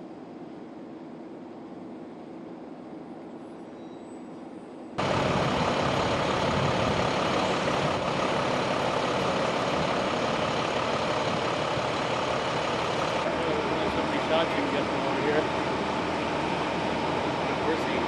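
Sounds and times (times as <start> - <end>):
emergency vehicles idling: 5.0 - 18.0.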